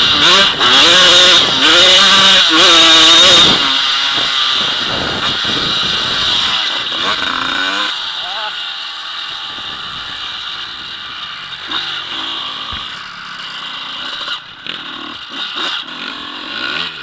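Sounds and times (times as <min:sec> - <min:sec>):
dirt bike engine revving: 0:00.0 - 0:17.0
wind noise: 0:03.0 - 0:06.9, 0:09.4 - 0:11.4.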